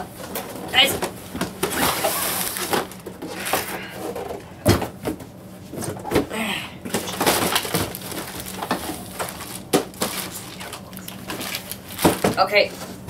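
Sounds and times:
plastic wrapping rustling: 0.7 - 4.4, 6.9 - 13.0.

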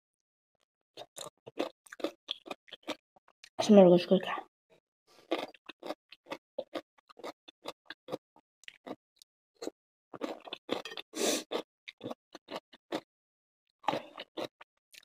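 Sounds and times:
chewing pickle: 1.0 - 3.0, 5.2 - 9.0, 9.6 - 13.1, 13.8 - 15.0.

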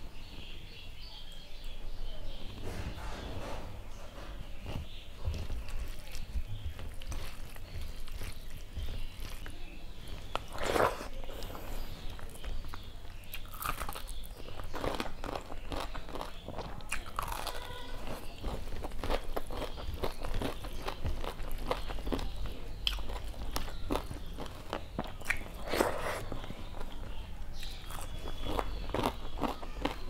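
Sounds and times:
fingers squishing rice: 4.6 - 30.0
soft mouth sounds: 10.2 - 13.7, 24.7 - 27.0.

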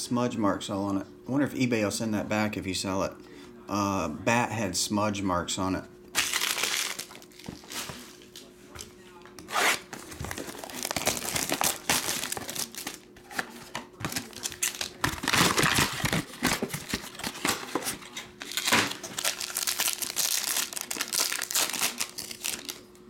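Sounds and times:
plastic wrap crinkling and tearing: 6.2 - 8.2, 9.5 - 22.9.

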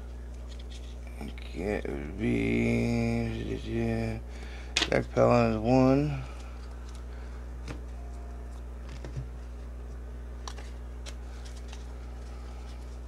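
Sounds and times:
low electrical hum: 0.0 - 13.0
cards tapping and flicking: 8.5 - 9.3, 10.4 - 13.0.

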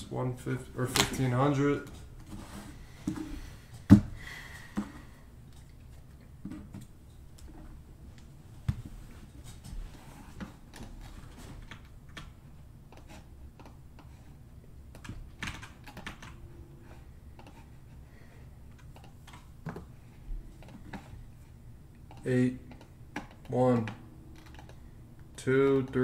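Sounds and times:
computer keyboard and mouse clicks: 11.6 - 14.1, 14.9 - 16.4, 18.7 - 19.8, 22.0 - 24.8.

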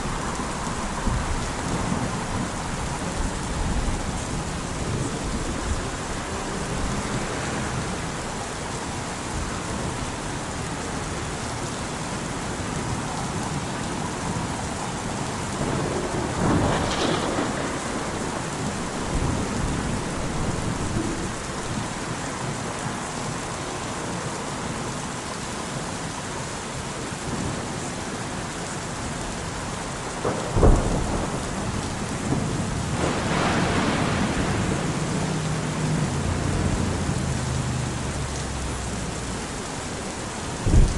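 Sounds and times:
steady rain: 0.0 - 40.9
thunder rumbling: 15.5 - 21.9, 30.2 - 40.9
loud thunder clap: 16.0 - 20.9, 30.2 - 35.0, 40.6 - 40.9.

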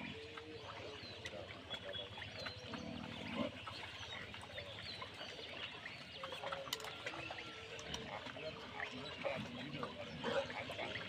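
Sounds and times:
pigs grunting: 0.0 - 4.4, 7.2 - 11.0
small birds chirping: 0.0 - 11.0.

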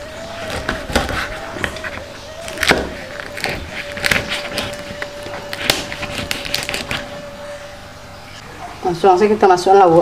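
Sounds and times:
knife cutting brittle fish: 0.4 - 7.1.

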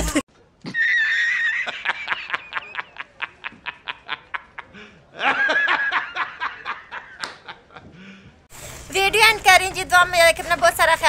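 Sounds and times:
man laughing hard: 0.7 - 8.1.

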